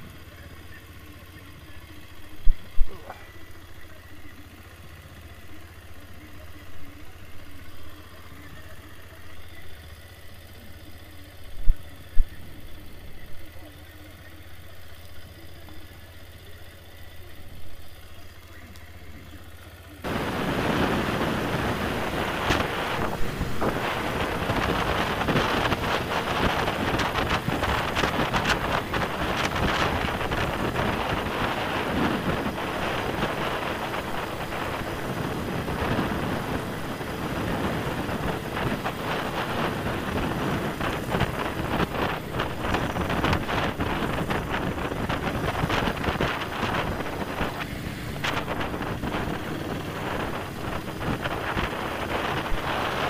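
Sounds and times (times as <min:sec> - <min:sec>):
motorcycle engine: 0:00.0 - 0:53.0
wind buffeting microphone: 0:20.1 - 0:53.0.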